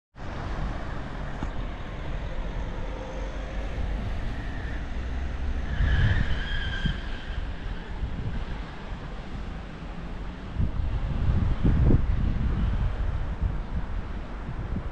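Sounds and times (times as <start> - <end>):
road traffic passing: 0.2 - 14.9.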